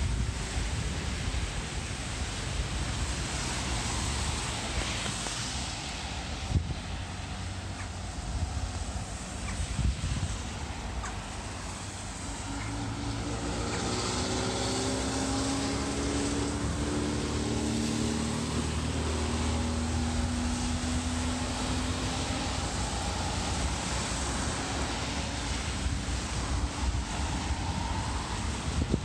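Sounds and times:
steady hiss: 0.0 - 29.0
engine droning past: 10.2 - 29.0.

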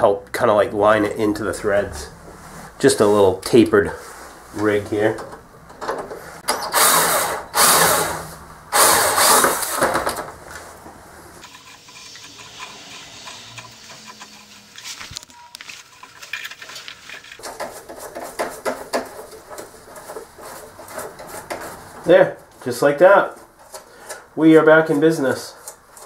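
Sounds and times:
cordless drill on steel: 6.5 - 9.8.

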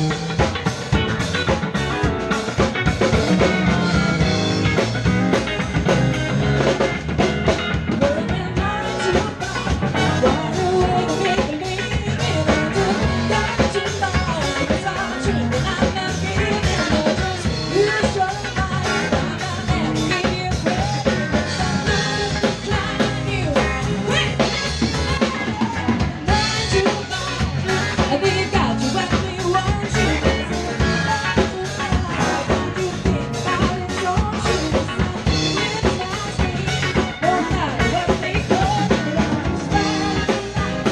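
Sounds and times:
drum kit beat: 0.0 - 40.9
electric guitar: 0.0 - 40.9
woman singing: 7.8 - 40.9.

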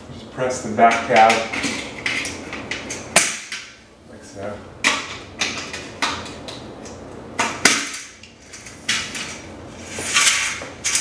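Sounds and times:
blind rail scraping rustle: 8.4 - 11.0.

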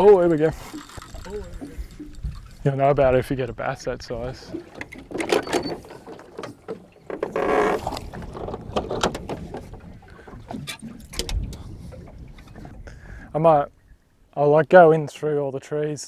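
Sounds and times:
water lapping against boat hull: 0.0 - 14.3
knocks and clicks from gear: 4.8 - 9.8.

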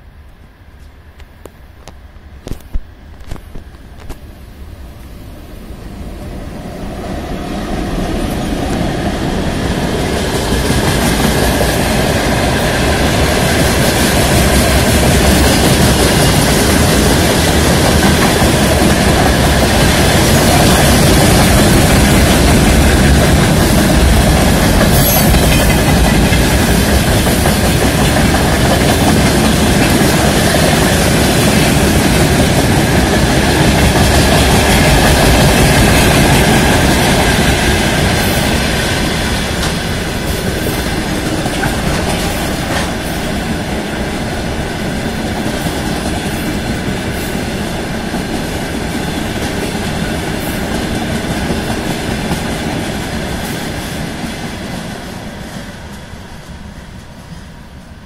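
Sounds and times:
freight train passing: 0.0 - 58.0
wheels clattering on rails: 9.8 - 44.1.

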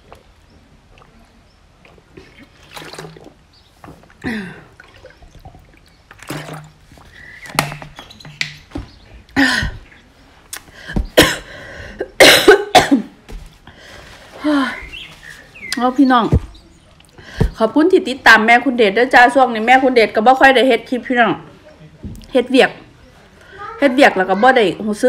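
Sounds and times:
person drinking from plastic bottle: 0.9 - 3.4
person coughing and clearing throat: 11.0 - 13.2.

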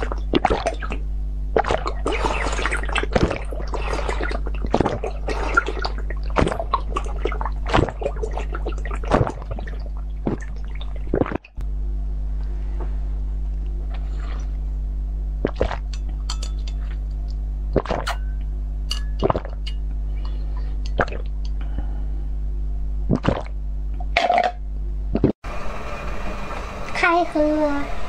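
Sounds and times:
wet mouth sounds: 0.0 - 11.6, 15.4 - 16.0, 17.7 - 18.2, 20.2 - 21.6, 23.1 - 25.3
steady electrical hum: 0.0 - 28.0
slurping drink through straw: 1.6 - 9.4, 13.9 - 14.6
light glass clinks: 16.3 - 16.7, 18.2 - 19.8.

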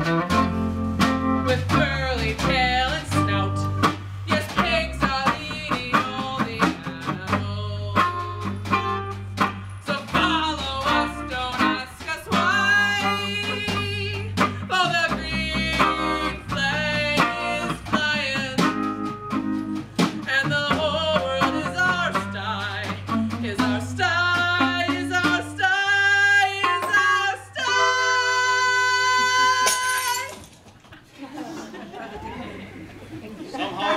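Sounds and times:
live instrumental accompaniment: 0.0 - 30.4
person singing: 1.3 - 30.4.

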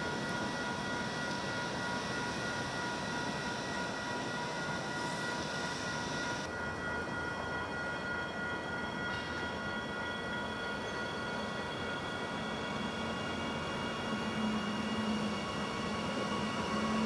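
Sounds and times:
train wheels rumbling on rail: 0.0 - 17.0
traction motor whine: 12.2 - 17.0.

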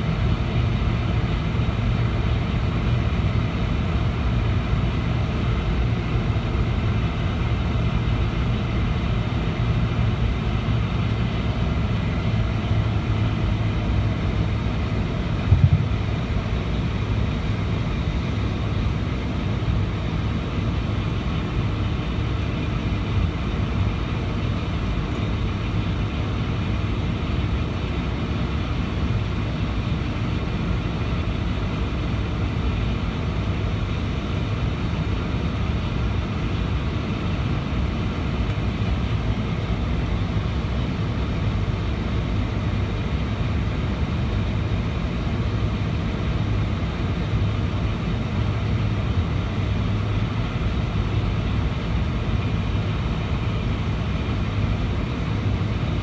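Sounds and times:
jet engines rumbling at taxi power: 0.0 - 56.0.

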